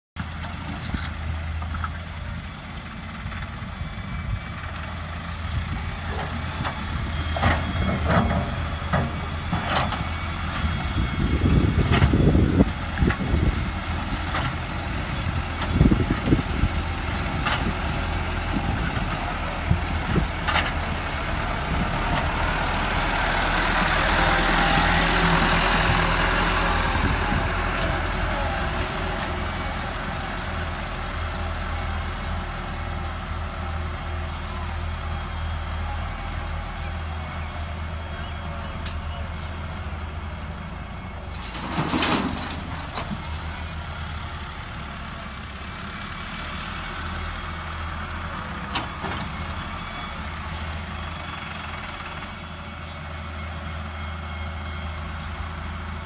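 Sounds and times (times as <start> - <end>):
diesel tractor engines running: 0.2 - 56.0
stones clanking into trolley: 41.3 - 43.3.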